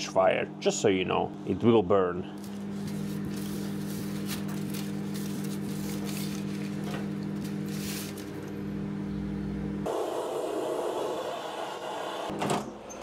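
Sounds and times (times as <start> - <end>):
foil tape crinkling: 2.4 - 8.4.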